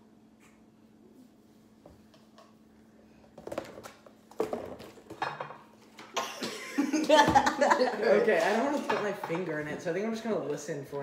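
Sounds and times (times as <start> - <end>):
kitchen items knocking on countertop: 3.4 - 5.7, 8.4 - 9.5
laughter: 6.2 - 8.1.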